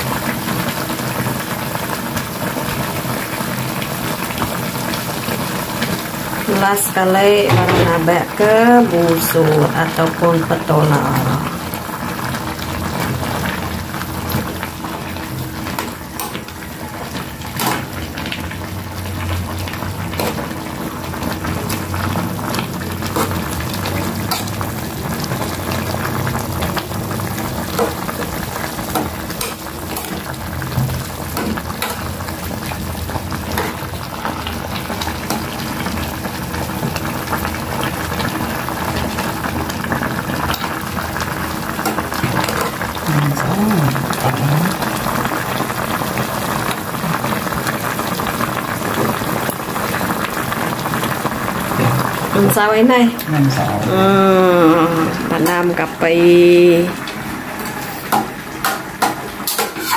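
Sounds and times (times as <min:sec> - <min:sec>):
soup bubbling in a pot: 0:00.0 - 0:06.9, 0:07.5 - 0:59.9
metal spoon scraping steel pot: 0:59.5 - 0:59.9.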